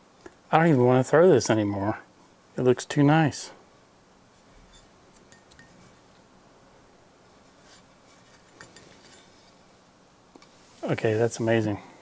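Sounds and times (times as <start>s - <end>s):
light metal clicks and clinks: 5.2s - 5.8s.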